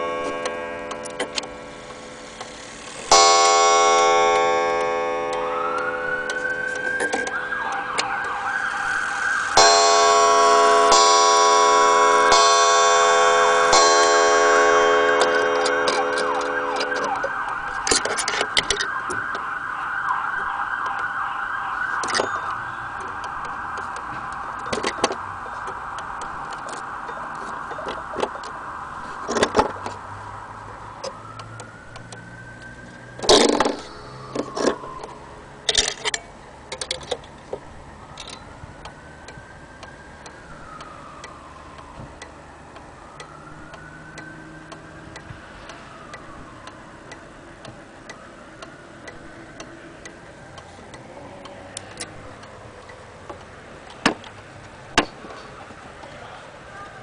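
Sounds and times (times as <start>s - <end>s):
steady tone: 0.0s - 18.9s
pendulum wall clock ticking: 9.4s - 19.4s
knocks and clicks: 13.8s - 19.5s, 22.0s - 28.6s, 31.0s - 39.9s.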